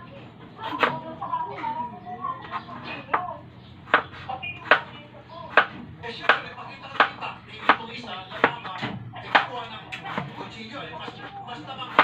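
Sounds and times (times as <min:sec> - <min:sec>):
knife chopping on cutting board: 0:03.9 - 0:04.9, 0:05.5 - 0:11.2.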